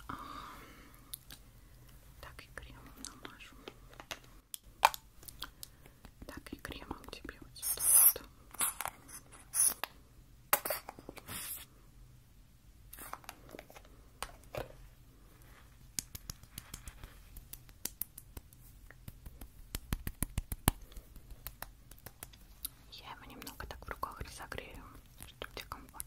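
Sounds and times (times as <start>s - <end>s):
scratchy rubbing of face cream: 15.5s - 22.6s.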